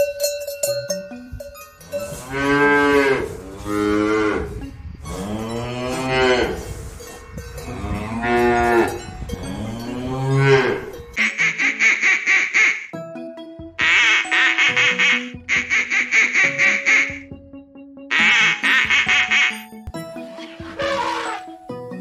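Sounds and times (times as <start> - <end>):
cowbells clanking: 0.0 - 11.6
cows mooing: 1.9 - 6.9, 7.6 - 11.2, 20.5 - 21.5.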